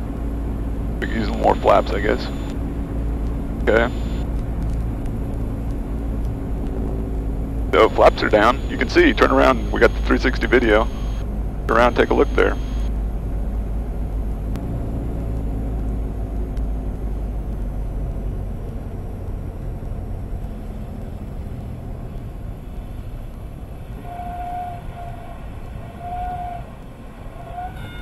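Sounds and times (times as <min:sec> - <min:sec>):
piston aircraft engine: 0:00.0 - 0:28.0
wind over airframe: 0:00.0 - 0:28.0
tire squeals on runway: 0:24.0 - 0:28.0.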